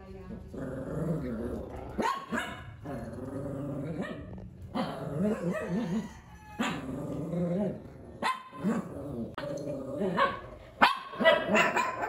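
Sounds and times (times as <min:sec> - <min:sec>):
small dogs growling: 0:00.3 - 0:12.0
small dogs barking: 0:01.8 - 0:02.9, 0:03.9 - 0:07.1, 0:08.2 - 0:09.1, 0:10.0 - 0:12.0.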